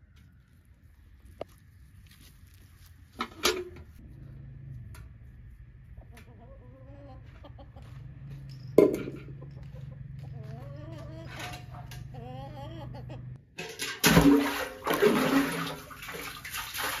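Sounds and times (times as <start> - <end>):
metal bucket set down: 3.2 - 3.9, 8.8 - 9.3, 11.3 - 12.0, 13.5 - 16.3
hens clucking: 5.4 - 13.4.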